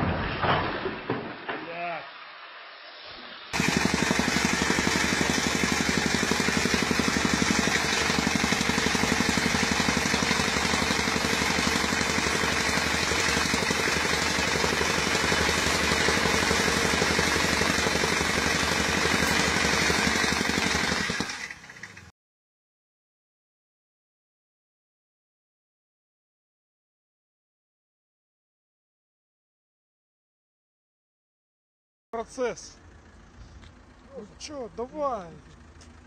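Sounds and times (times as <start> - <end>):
tamping rammer pounding: 3.5 - 22.1.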